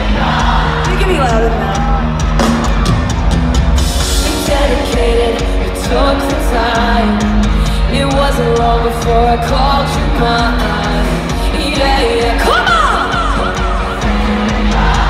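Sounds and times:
drums: 0.0s - 15.0s
live pop-rock band: 0.0s - 15.0s
person singing: 4.2s - 15.0s.

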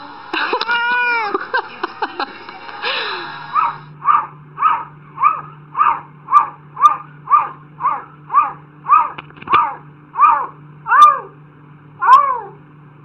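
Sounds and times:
cat meowing rapidly: 0.6s - 1.3s.

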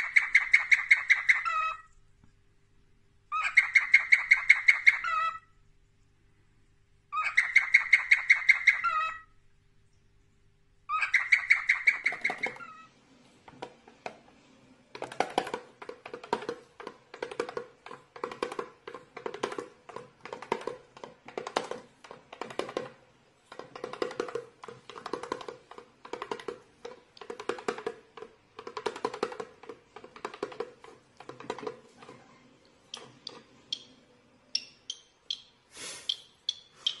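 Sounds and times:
cockatiel chirps: 0.0s - 1.9s, 3.3s - 5.5s, 7.1s - 9.3s, 10.9s - 12.9s, 32.9s - 37.0s
cockatiel whistle: 34.6s - 37.0s.

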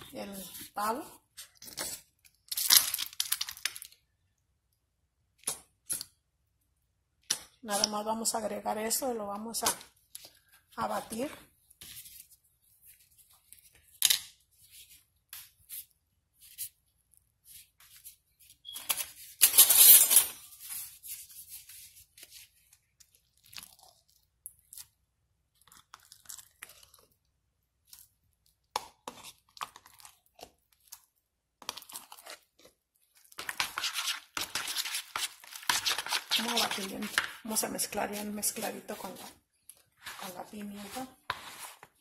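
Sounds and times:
spoon scraping plastic bowl: 33.3s - 39.4s, 40.0s - 42.0s.

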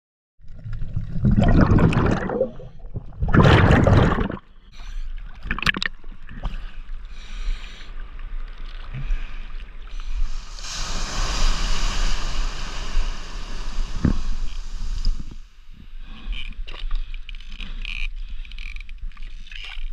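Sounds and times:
seawater sloshing and splashing: 0.7s - 4.5s
wave whitewater hissing: 10.0s - 15.5s.

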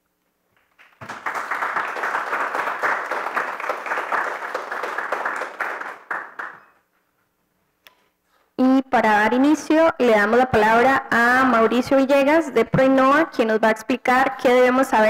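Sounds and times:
audience applauding: 0.6s - 6.8s.

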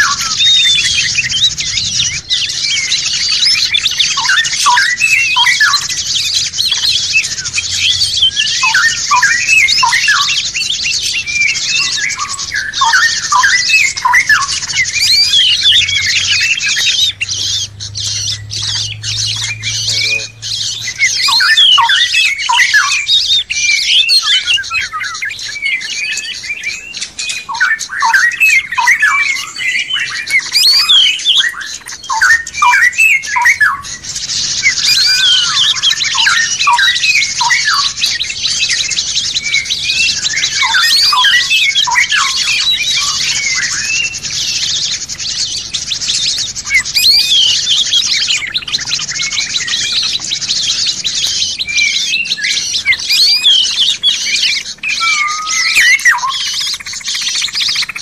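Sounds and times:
songbirds singing and chirping: 0.0s - 58.0s.

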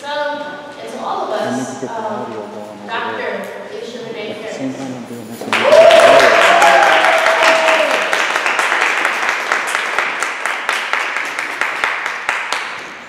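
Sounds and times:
person cheering: 5.5s - 8.1s
audience applauding: 5.5s - 13.0s.

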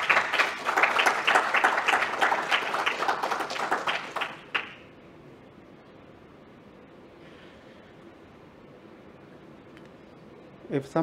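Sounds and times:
audience applause: 0.0s - 4.8s.

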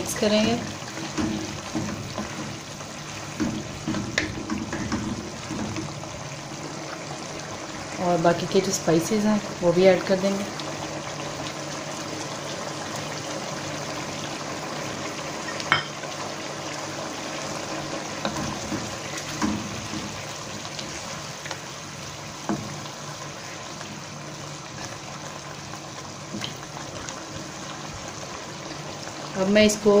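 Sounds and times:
curry simmering with hiss: 0.0s - 30.0s
spatula scraping and knocking pan: 0.4s - 2.6s, 3.3s - 5.9s.

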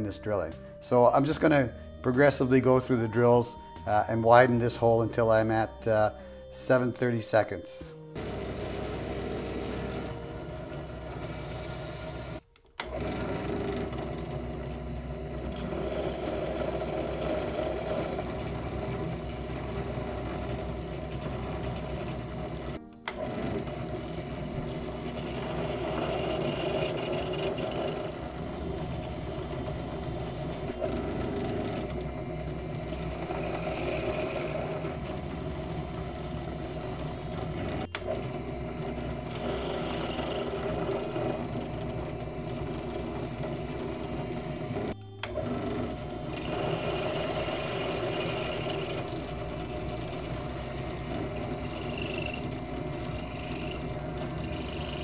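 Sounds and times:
drill press drilling steel: 8.2s - 55.0s.

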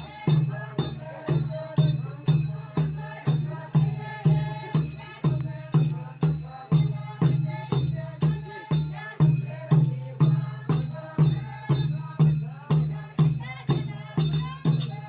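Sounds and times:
drums with jingling rattle: 0.0s - 15.0s
group of voices chanting: 0.0s - 15.0s.

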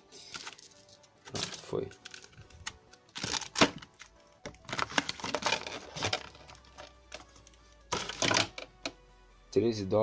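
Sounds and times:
plastic packaging rustle: 0.2s - 7.3s.

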